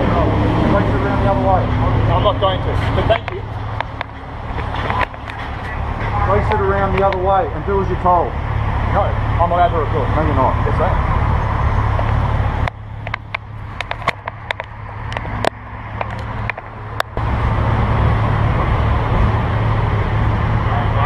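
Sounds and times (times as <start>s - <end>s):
low rumble of street traffic: 0.0s - 21.0s
camera handling clicks and knocks: 13.0s - 16.7s.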